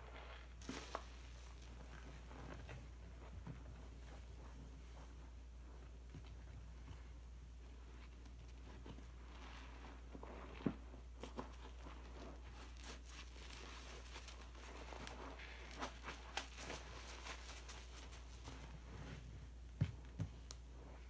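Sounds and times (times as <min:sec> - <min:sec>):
sponge squishing in suds: 0:00.0 - 0:02.4, 0:08.8 - 0:19.1
low steady hum: 0:00.0 - 0:21.0.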